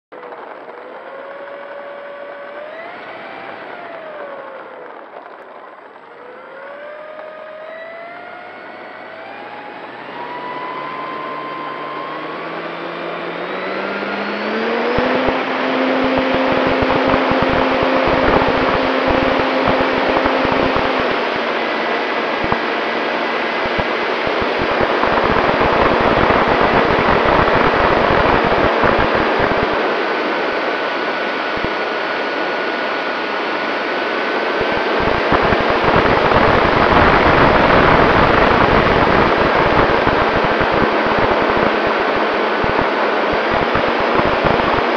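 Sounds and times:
electric motor and propeller whine: 0:00.2 - 0:44.9
wind rushing past microphone: 0:14.7 - 0:32.6, 0:33.6 - 0:44.9.

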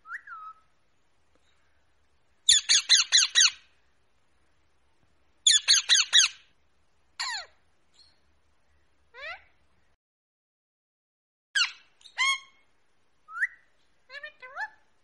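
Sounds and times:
parakeet screeching: 0:02.5 - 0:03.6, 0:05.5 - 0:06.4, 0:07.2 - 0:07.6, 0:11.6 - 0:12.6.

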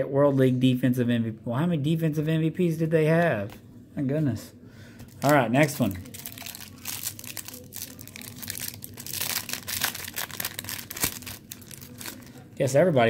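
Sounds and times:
wax paper wrapper tearing and crinkling: 0:05.1 - 0:12.9.

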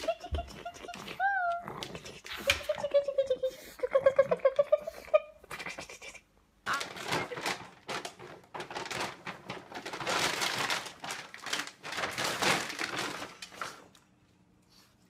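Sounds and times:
plastic bag crinkling and scraping: 0:06.7 - 0:14.0.

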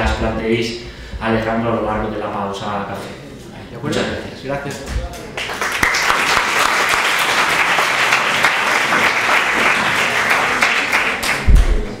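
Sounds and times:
audience applauding: 0:05.2 - 0:12.0
short low thump: 0:11.5 - 0:12.0.

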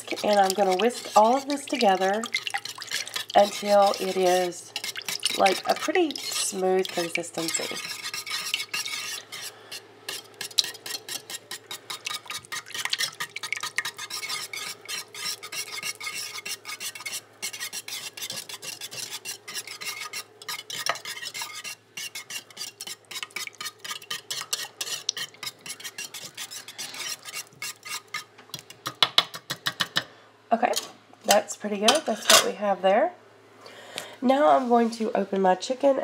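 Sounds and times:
wire whisk scraping a pot: 0:00.0 - 0:28.3.

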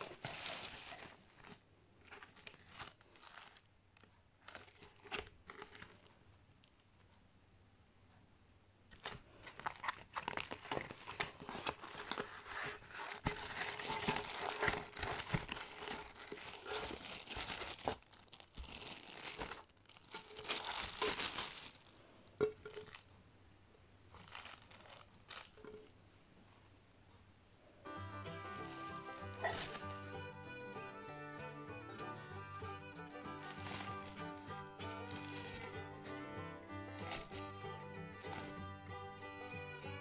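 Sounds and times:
cardboard and plastic rustling: 0:00.0 - 0:07.2, 0:08.9 - 0:23.2, 0:24.1 - 0:25.9, 0:28.1 - 0:30.4, 0:32.6 - 0:39.1.

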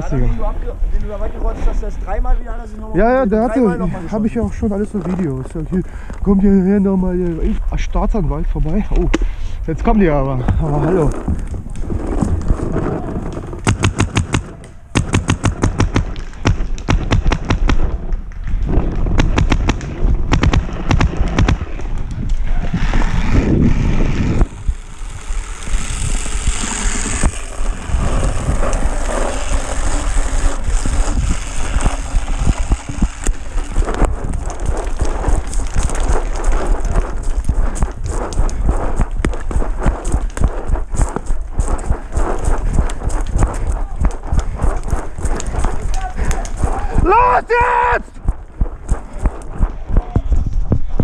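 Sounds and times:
paintball marker rapid shots: 0:10.4 - 0:47.2, 0:48.1 - 0:50.9
rustling: 0:21.2 - 0:51.0
footsteps on dry forest floor: 0:27.6 - 0:47.1.

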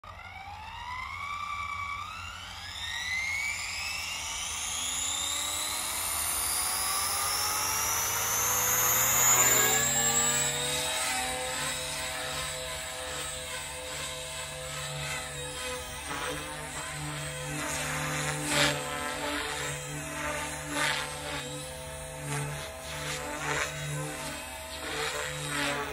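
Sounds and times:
electric helicopter motor whine: 0:00.0 - 0:25.9.

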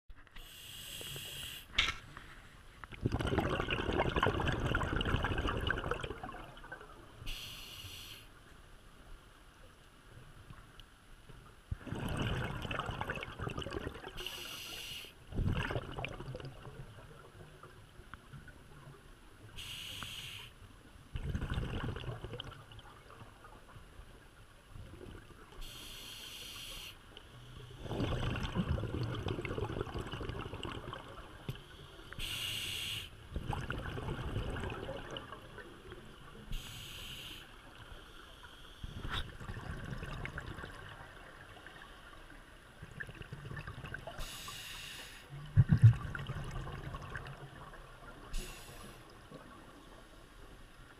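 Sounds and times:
regulator inhale hiss: 0:00.4 - 0:02.6, 0:07.3 - 0:08.4, 0:14.2 - 0:15.2, 0:19.6 - 0:20.6, 0:25.6 - 0:27.8, 0:31.6 - 0:33.2, 0:36.5 - 0:39.2, 0:44.2 - 0:45.4, 0:48.3 - 0:49.2
exhaled bubbles underwater: 0:02.9 - 0:07.2, 0:11.7 - 0:17.8, 0:21.1 - 0:23.7, 0:27.6 - 0:32.3, 0:33.3 - 0:36.8, 0:38.8 - 0:44.5, 0:45.3 - 0:50.0.

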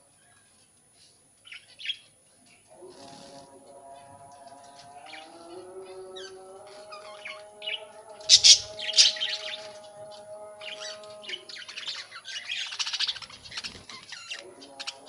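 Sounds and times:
budgerigars chirping and chattering: 0:06.1 - 0:15.0.

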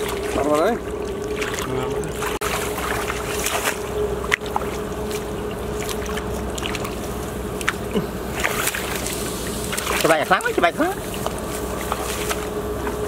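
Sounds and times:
constant low hum: 0:00.0 - 0:13.0
hands working in wet mud: 0:00.0 - 0:13.0
hands rustling through grass: 0:08.3 - 0:13.0.

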